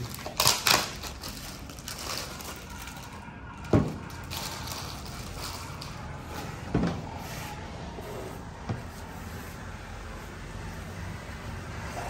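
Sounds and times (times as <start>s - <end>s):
plastic bag rustling: 0.0s - 7.2s.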